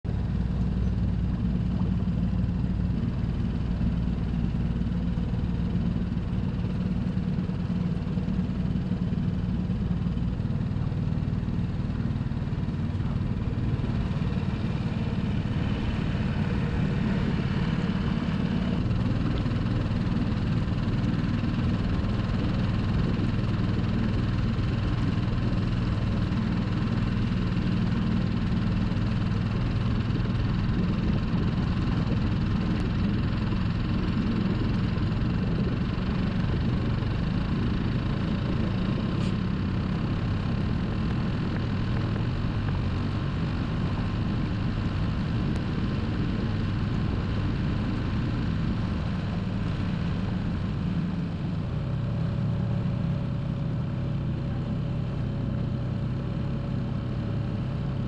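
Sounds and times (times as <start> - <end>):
outboard motor running: 0.0 - 58.0.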